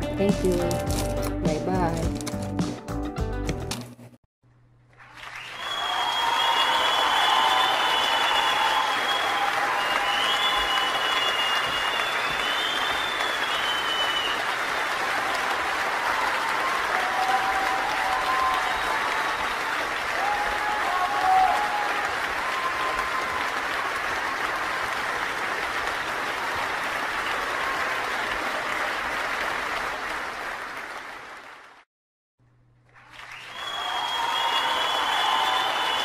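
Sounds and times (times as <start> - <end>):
crowd applause: 4.9 - 31.9, 32.9 - 36.0.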